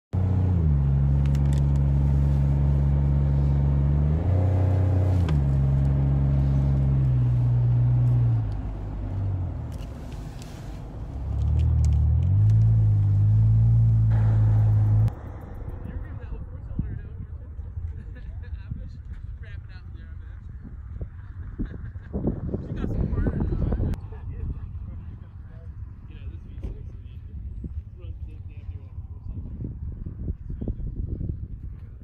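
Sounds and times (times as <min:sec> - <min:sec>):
vehicle engine revving under load: 0:00.2 - 0:16.0.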